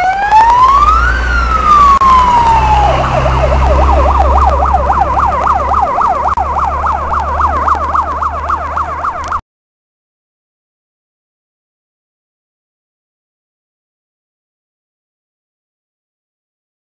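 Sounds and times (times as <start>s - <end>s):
fire engine siren: 0.0s - 9.4s
truck engine rumble: 0.0s - 9.4s.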